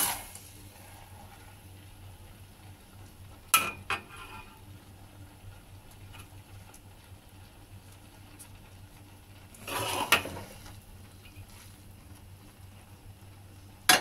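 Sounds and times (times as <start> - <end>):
faint steady hum: 0.0 - 14.0
metal spatula scraping a wok: 3.9 - 4.6, 9.6 - 10.6.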